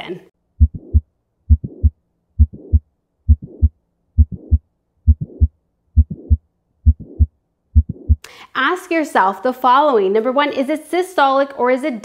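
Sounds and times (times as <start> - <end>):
heartbeat thumps: 0.6 - 8.2
hissing heart murmur: 0.6 - 8.2.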